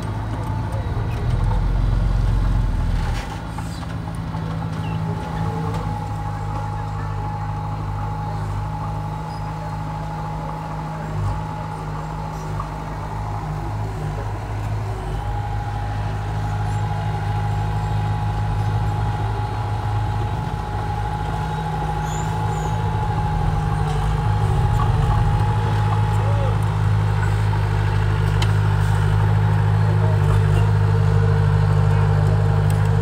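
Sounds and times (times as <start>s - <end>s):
bulldozer diesel engine running: 0.0s - 33.0s
thin whine: 21.4s - 27.2s.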